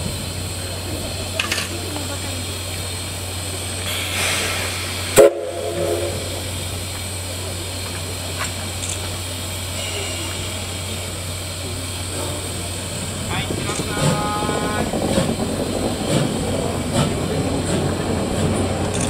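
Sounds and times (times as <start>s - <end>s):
steam locomotive hissing: 0.0s - 19.0s
steam whistle toot: 5.2s - 6.4s.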